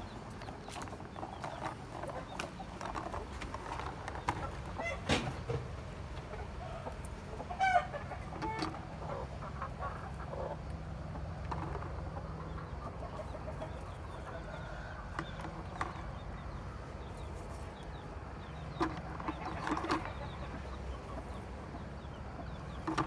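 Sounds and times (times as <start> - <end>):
chickens clucking: 0.0 - 23.0
eggs clicking and straw rustling: 0.2 - 4.9, 10.6 - 12.6, 18.6 - 20.9, 22.6 - 23.0
loud chicken calls: 4.4 - 17.5.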